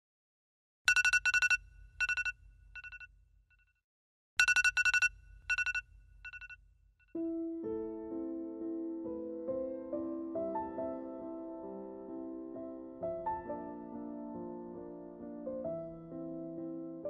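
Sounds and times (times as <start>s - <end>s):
phone ringtone trilling beeps: 0.9s - 3.1s, 4.4s - 6.6s
piano music: 7.2s - 17.0s.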